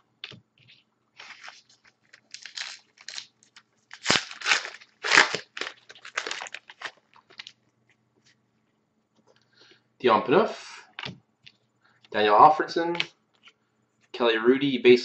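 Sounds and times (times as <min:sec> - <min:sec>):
foil wrapper crinkling: 0:01.2 - 0:07.6.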